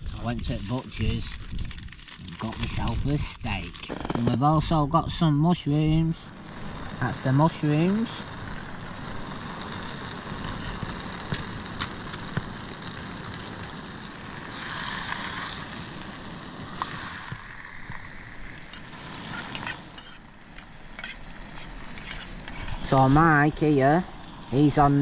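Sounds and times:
food sizzling in a pan: 6.0 - 25.0.

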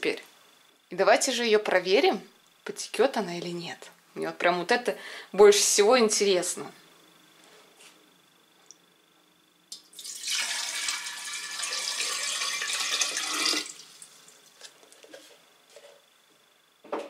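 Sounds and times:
water pouring into glass jar: 9.9 - 14.0.

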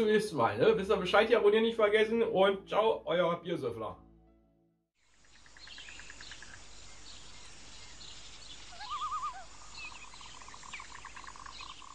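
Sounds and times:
steady hiss: 5.0 - 11.1
birds chirping: 5.0 - 11.9
loud warbling bird call: 8.6 - 11.9.

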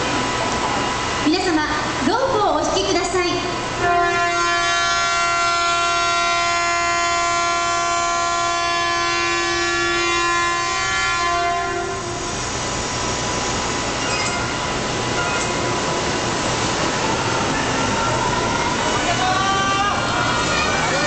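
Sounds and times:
train horn long blast: 3.7 - 12.4.

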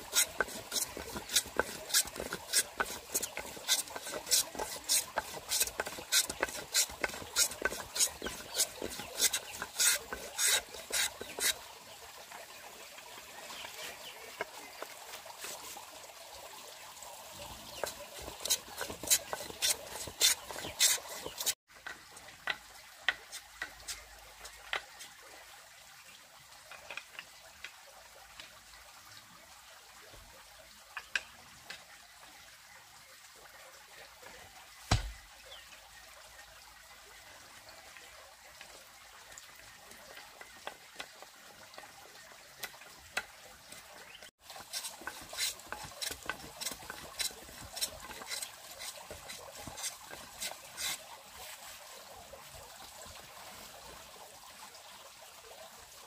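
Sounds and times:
hand tool working wood: 0.0 - 11.6, 14.4 - 15.8, 17.7 - 21.6, 22.5 - 25.1, 43.7 - 51.6
thump: 34.9 - 35.2.

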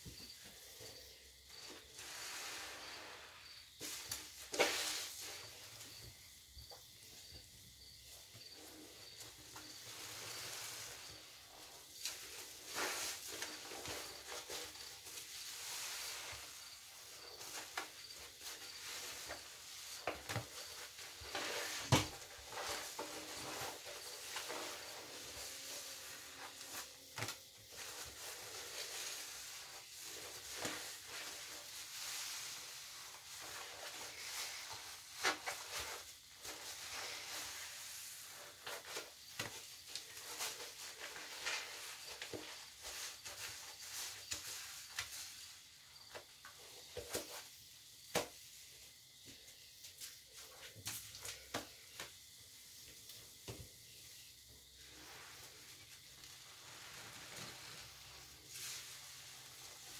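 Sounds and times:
soap foam fizzing and crackling: 1.9 - 5.6, 9.9 - 45.2, 54.8 - 59.9.

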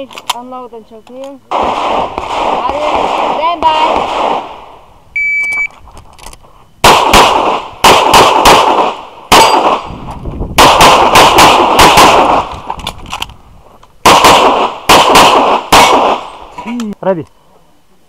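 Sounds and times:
pistol shots: 1.5 - 4.6, 6.8 - 9.9, 10.6 - 12.5, 14.0 - 16.4
shot timer beep: 5.2 - 5.7.

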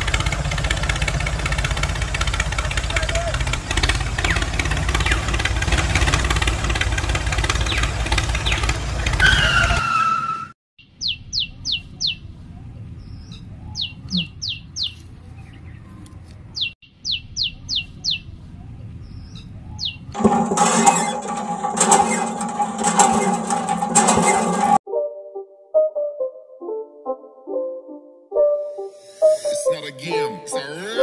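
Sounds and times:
engine running: 0.0 - 9.8, 20.2 - 24.8
short falling squeal: 9.2 - 10.6
bird chirping: 10.8 - 12.3, 13.0 - 16.0, 16.6 - 18.3
music: 24.9 - 31.0.

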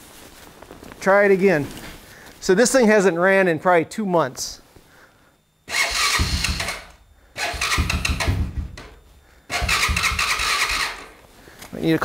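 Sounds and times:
electric starter cranking engine: 5.7 - 11.2.

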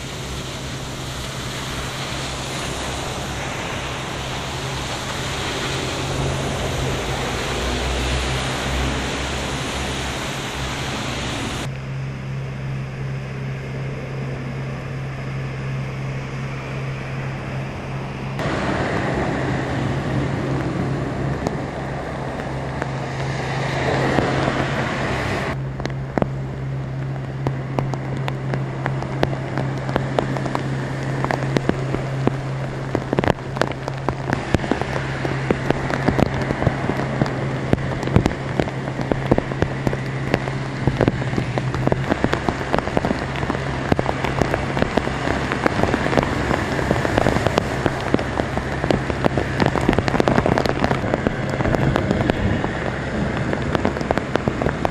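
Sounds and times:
car passing: 0.0 - 54.9
car tyres splashing through water: 0.0 - 54.9
heavy rain pouring: 0.0 - 54.9
steady low hum: 0.0 - 54.9
raindrops pattering with ticks: 18.3 - 54.9.

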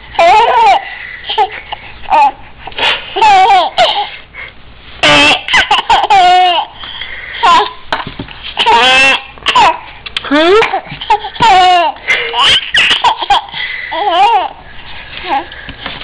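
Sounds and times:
baby giggling: 0.1 - 4.2, 5.0 - 6.8, 8.6 - 9.8, 10.4 - 14.6.

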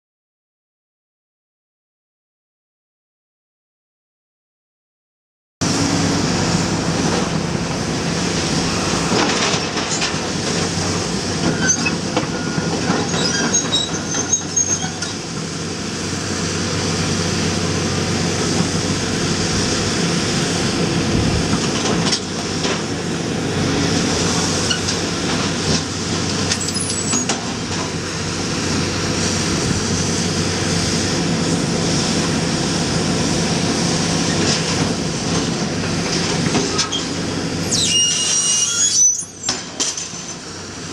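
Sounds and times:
excavator diesel engine running: 5.6 - 40.9
metal squeals and clanks: 11.4 - 15.2, 26.5 - 27.4, 36.7 - 40.5.

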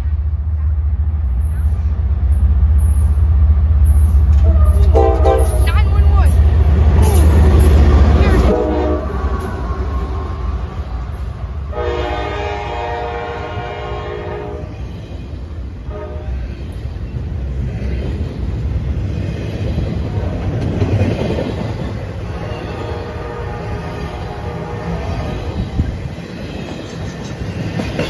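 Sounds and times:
train cars rumbling on rails: 0.0 - 28.0
locomotive air horn blasts: 4.8 - 5.6, 8.4 - 10.5, 11.7 - 14.7, 15.9 - 16.3, 22.4 - 25.0.

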